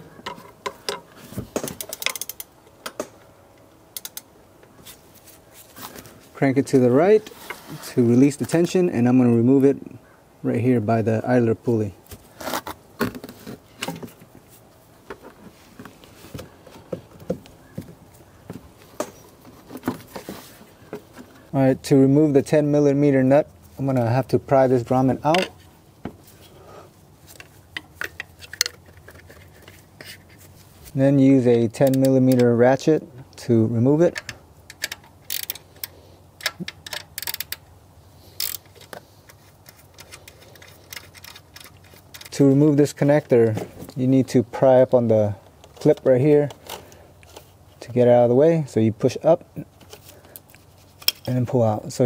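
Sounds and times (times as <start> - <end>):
ratchet clicking: 1.8 - 2.5, 34.7 - 37.7, 38.4 - 38.7
belt and pulleys clicking: 34.1 - 37.7, 38.4 - 42.4.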